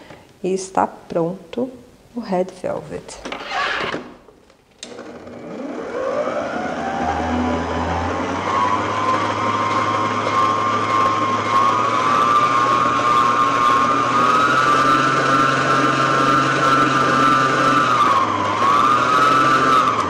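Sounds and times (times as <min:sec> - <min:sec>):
electric stand mixer motor whine: 0:04.8 - 0:20.0.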